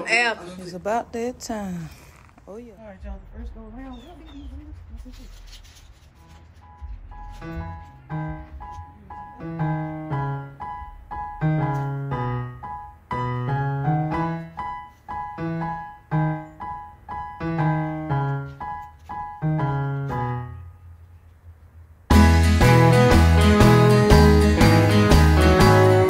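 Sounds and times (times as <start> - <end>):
piano background music: 6.2 - 20.9, 22.1 - 26.0.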